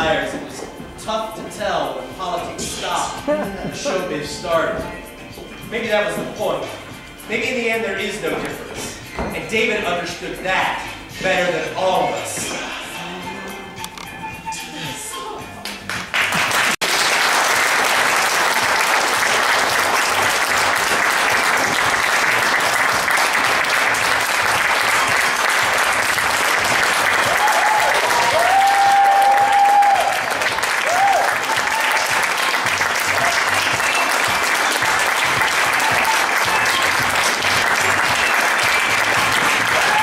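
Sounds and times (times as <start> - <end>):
audience applauding: 15.6 - 40.0
whoops: 27.2 - 32.2, 39.7 - 40.0.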